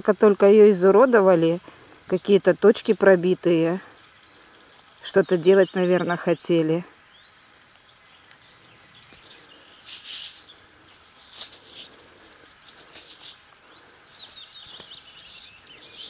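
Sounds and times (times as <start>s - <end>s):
small birds chirping: 0.1s - 16.0s
fingers rubbing soil off metal: 9.0s - 16.0s.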